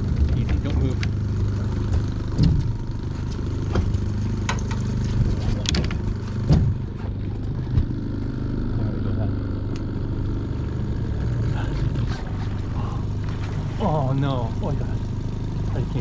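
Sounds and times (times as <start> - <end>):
outboard motor running: 0.0 - 16.0
sharp knocks and clicks: 1.8 - 8.0.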